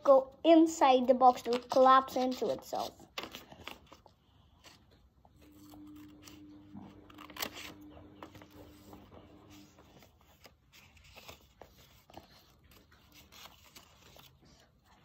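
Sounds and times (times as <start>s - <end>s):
scissors snipping paper: 1.0s - 4.9s, 5.5s - 15.0s
paper rustling: 1.0s - 15.0s
faint steady hum: 4.2s - 10.9s.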